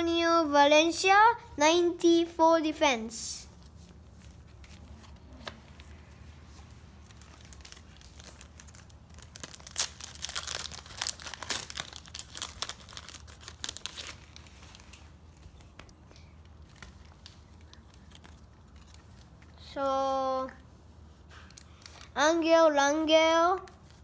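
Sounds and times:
foil packet tearing and crinkling: 7.0 - 15.1.

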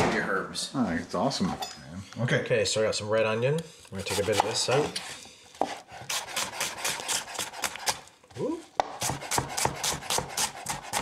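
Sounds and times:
knife chopping on cutting board: 4.0 - 5.0, 5.6 - 8.0, 8.8 - 11.0.

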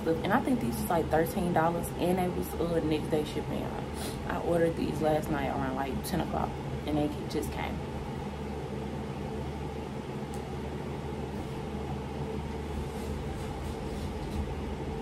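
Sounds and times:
low mechanical hum: 0.0 - 15.0
faint brushing sounds: 12.7 - 14.6.

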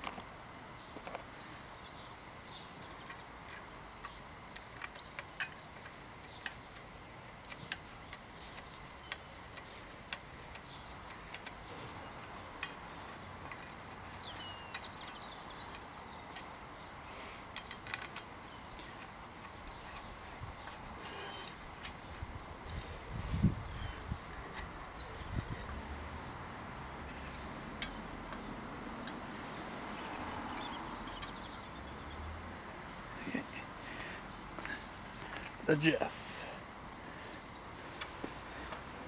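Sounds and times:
birds chirping: 0.7 - 38.8
allen key clicking on metal bolts: 27.3 - 29.2.

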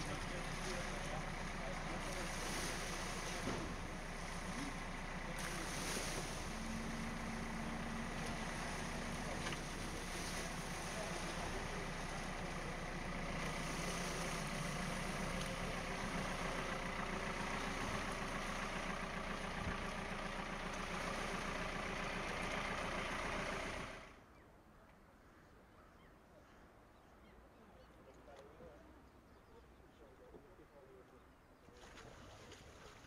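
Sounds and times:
tractor engine running: 0.0 - 24.2
outboard motors running: 0.0 - 24.4
faint outdoor ambience: 0.0 - 33.0.

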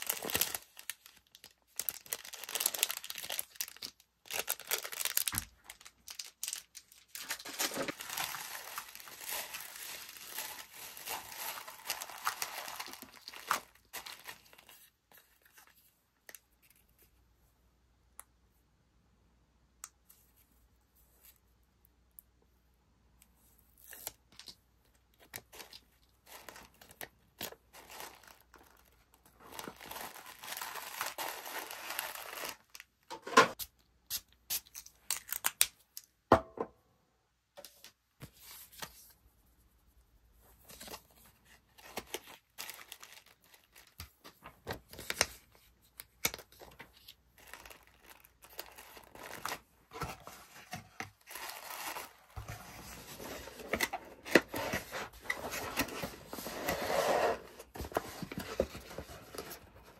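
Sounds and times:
tissue paper crinkling: 0.0 - 15.8, 25.4 - 32.9, 40.6 - 45.6, 46.5 - 59.9.

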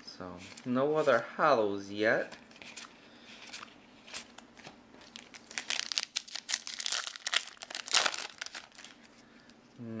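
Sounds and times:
foil wrapper tearing and crinkling: 5.0 - 9.1.

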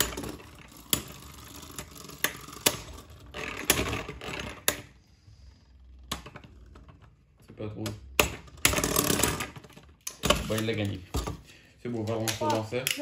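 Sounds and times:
spinning tops whirring scrape: 0.0 - 7.3, 8.5 - 9.9.

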